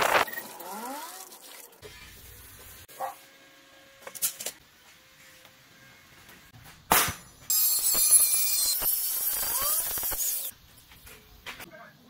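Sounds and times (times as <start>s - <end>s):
angle grinder cutting steel: 7.5s - 10.5s.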